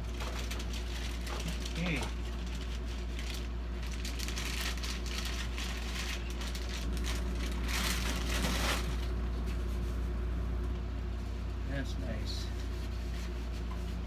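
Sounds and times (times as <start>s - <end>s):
plastic bag crinkling: 0.0s - 9.4s
steady low hum: 0.0s - 14.0s.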